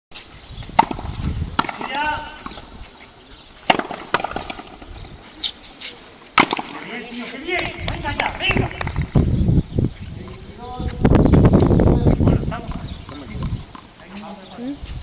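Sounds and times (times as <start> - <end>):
ball cracking off racket and wall: 0.7 - 2.6, 3.6 - 4.9, 6.3 - 9.1.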